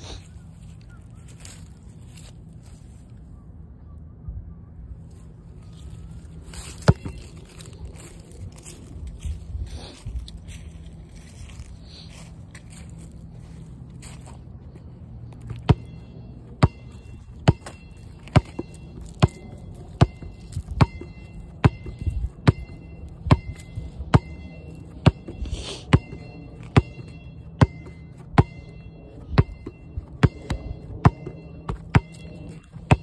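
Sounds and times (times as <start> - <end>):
steady low hum: 0.0 - 33.0
basketball bouncing on pavement: 6.8 - 7.4, 15.3 - 33.0.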